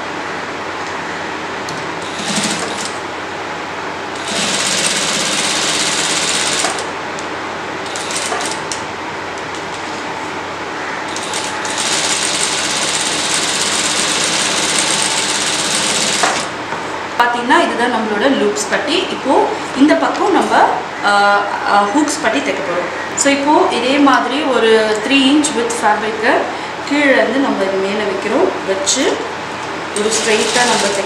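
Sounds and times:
sewing machine stitching: 2.0 - 3.0, 4.2 - 6.9, 11.1 - 16.5, 30.0 - 31.0.

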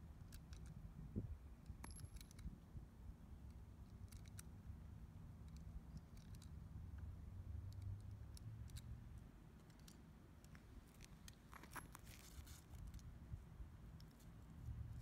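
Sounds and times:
low steady rumble: 0.0 - 15.0
hands handling small objects: 9.6 - 13.1.

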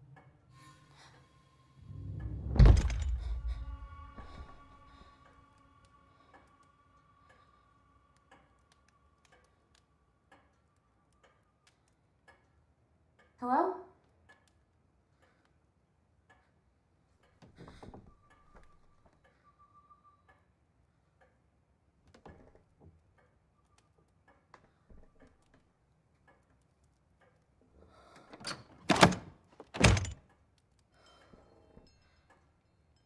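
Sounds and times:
faint ticks: 5.4 - 13.4.

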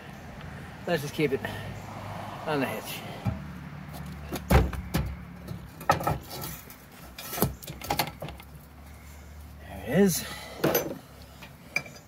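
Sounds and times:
metal tube clanking against hitch: 10.6 - 12.0.

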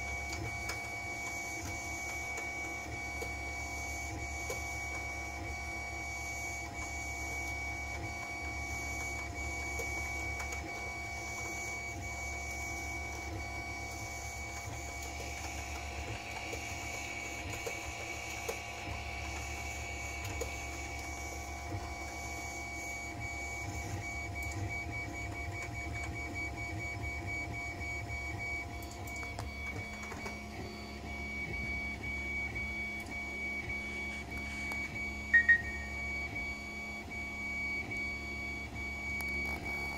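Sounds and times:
printer whirring hum: 0.0 - 39.9
short high beeps: 35.3 - 36.1.

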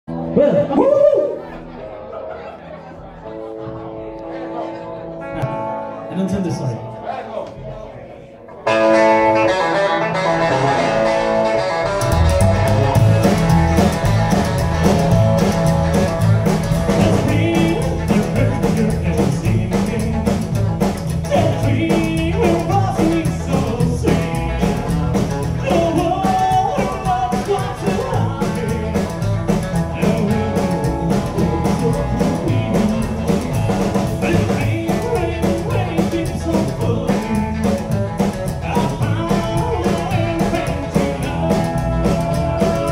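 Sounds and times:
drums: 0.1 - 2.1, 5.3 - 6.7, 8.6 - 42.9
electric guitar: 0.1 - 7.0, 8.6 - 42.9
rock and roll band playing: 0.1 - 7.8, 8.5 - 42.9
upright double bass: 8.7 - 42.9
man singing: 16.8 - 42.9.

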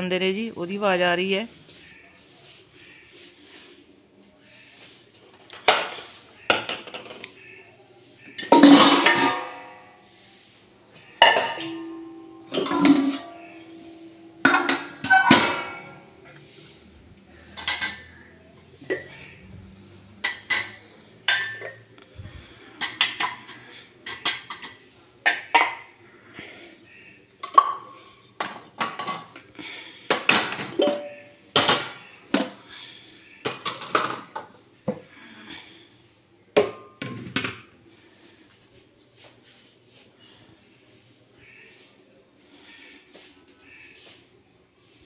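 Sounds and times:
metal dishes clattering: 8.3 - 10.1, 11.0 - 16.5, 17.2 - 26.0, 27.4 - 34.6.

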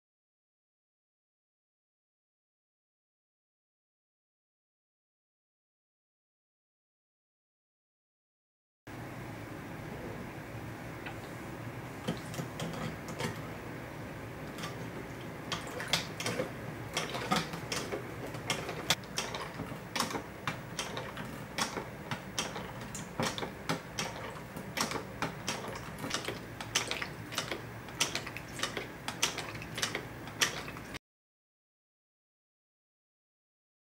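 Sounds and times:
plastic pump parts clicking: 14.5 - 31.0.

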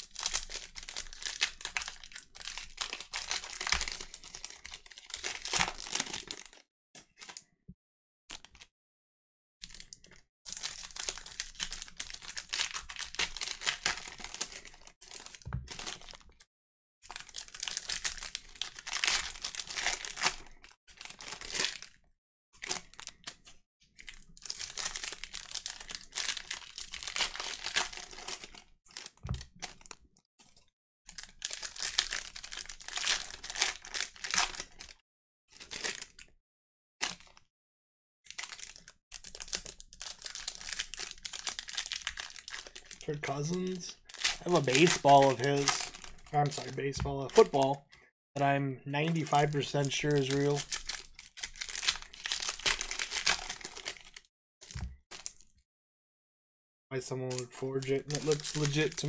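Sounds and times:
card pack wrappers tearing: 0.0 - 6.6, 10.5 - 16.2, 17.1 - 21.9, 24.0 - 30.0, 31.2 - 34.9, 38.3 - 47.8, 49.0 - 55.5, 57.3 - 59.0.

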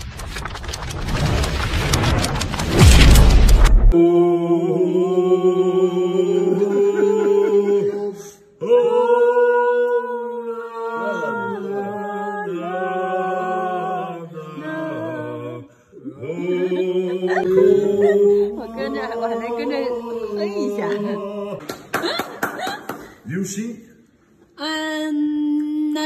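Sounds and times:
two men singing in harmony: 4.0 - 21.7.

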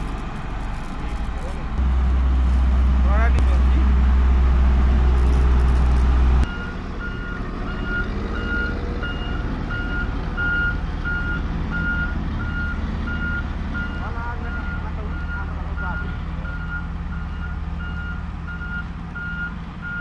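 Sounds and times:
roller engine running: 0.0 - 16.9
road roller low drone: 0.0 - 20.0
reversing alarm beeps: 6.4 - 20.0.

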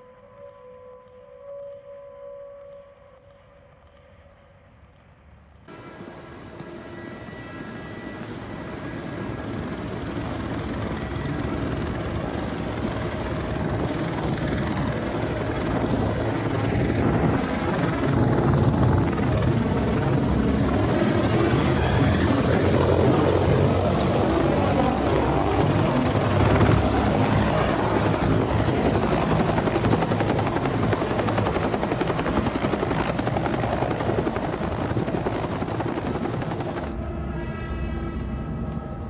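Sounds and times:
helicopter engines and rotor: 5.2 - 39.0.

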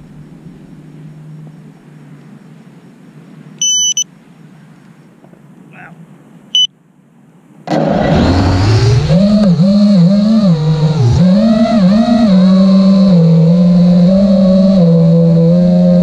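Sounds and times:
short electronic beeps: 3.6 - 4.1, 6.5 - 6.8.

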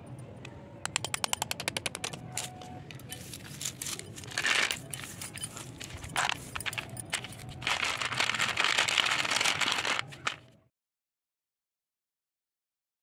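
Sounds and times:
slate pieces clattering: 3.2 - 10.4.

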